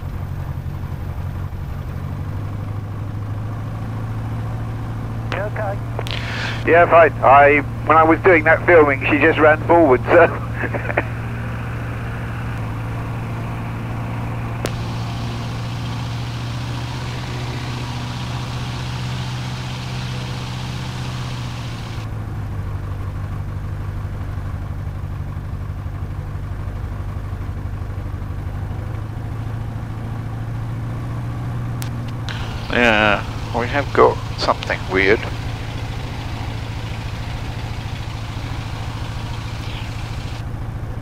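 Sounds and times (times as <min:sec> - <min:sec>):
aircraft piston engine running: 0:00.1 - 0:22.1, 0:31.8 - 0:41.0.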